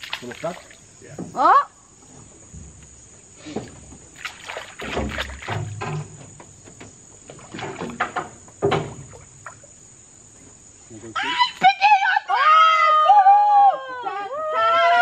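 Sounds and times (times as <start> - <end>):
fishing pole slapping water: 0.0 - 0.8, 4.1 - 6.1
pole knocking against canoe: 4.7 - 9.6.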